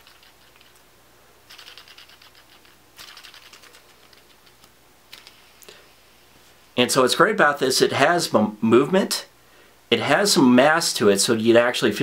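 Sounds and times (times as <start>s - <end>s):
fidget spinner clicking: 0.0s - 0.9s, 1.5s - 5.4s.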